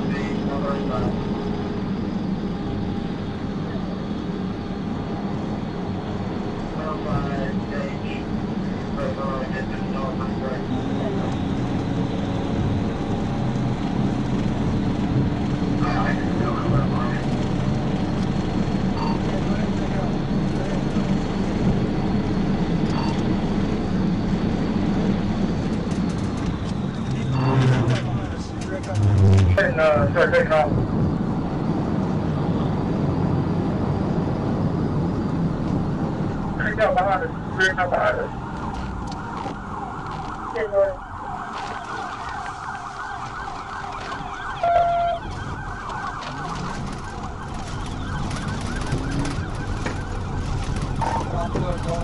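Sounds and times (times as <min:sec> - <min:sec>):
car engine roaring: 0:00.0 - 0:52.0
wind noise: 0:23.3 - 0:36.4
steady horn tone: 0:27.1 - 0:29.8
police siren yelp: 0:36.8 - 0:52.0.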